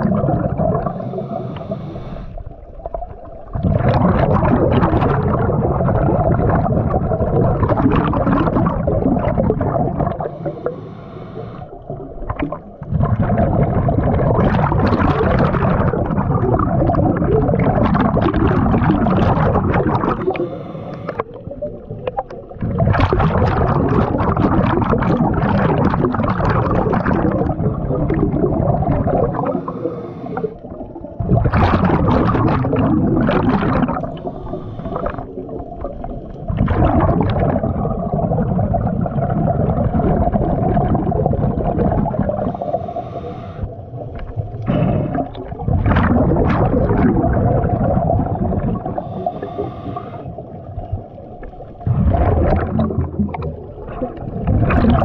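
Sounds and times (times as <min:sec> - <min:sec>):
faint steady hum: 0:00.0 - 0:55.0
gurgling exhaled bubbles: 0:00.0 - 0:55.0
regulator inhalations: 0:00.8 - 0:02.5, 0:10.2 - 0:11.8, 0:20.2 - 0:21.4, 0:29.4 - 0:30.6, 0:34.1 - 0:35.4, 0:42.4 - 0:43.9, 0:49.0 - 0:50.5.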